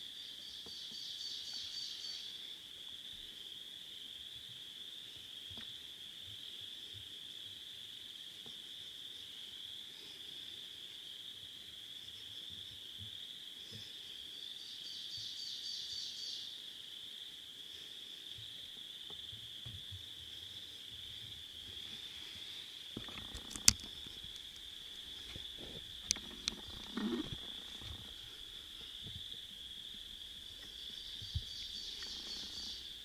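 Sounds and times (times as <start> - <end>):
chorus of calling animals: 21.7 - 33.0
faint ticks: 23.0 - 33.0.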